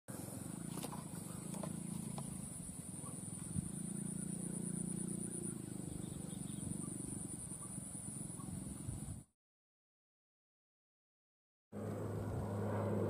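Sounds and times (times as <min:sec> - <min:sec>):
high-pitched insect drone: 0:00.2 - 0:09.2
low hum: 0:11.8 - 0:13.0.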